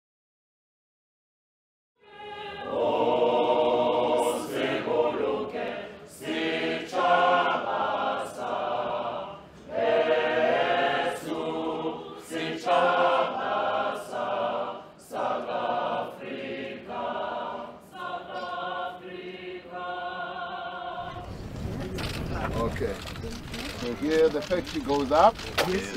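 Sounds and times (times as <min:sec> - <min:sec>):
choir singing: 0:02.0 - 0:21.8.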